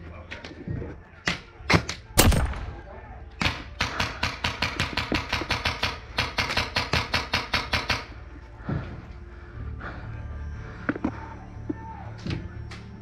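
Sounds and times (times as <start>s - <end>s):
airsoft gun rapid shots: 3.4s - 8.1s.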